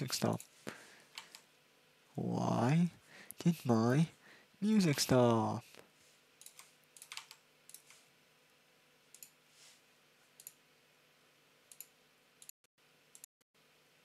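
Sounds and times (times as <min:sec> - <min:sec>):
computer mouse clicks: 0:06.4 - 0:08.0, 0:09.1 - 0:09.4, 0:11.7 - 0:12.5.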